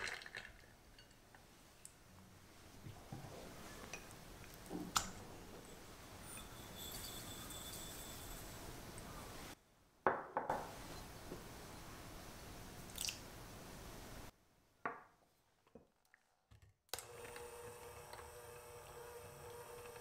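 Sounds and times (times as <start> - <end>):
electric hand mixer whirring: 17.0 - 20.0.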